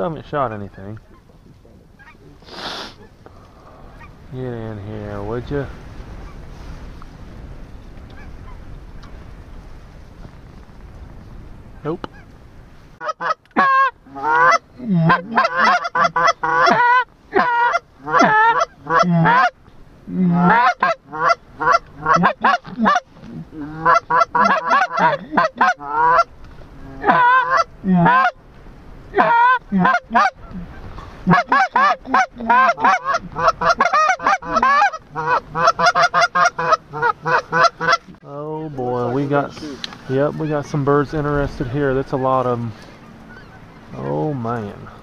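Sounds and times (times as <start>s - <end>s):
geese honking: 0.3s - 4.2s, 13.0s - 19.6s, 20.3s - 28.4s, 29.1s - 45.0s.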